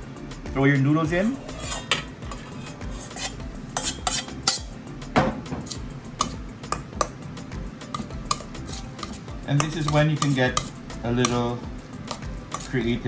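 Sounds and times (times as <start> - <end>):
spoon scraping metal bowl: 1.3 - 4.8, 7.9 - 13.0.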